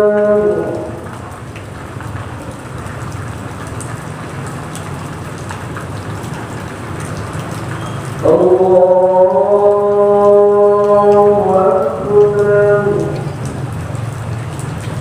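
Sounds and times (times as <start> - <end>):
man singing over loudspeakers: 0.0 - 1.1, 8.2 - 13.5.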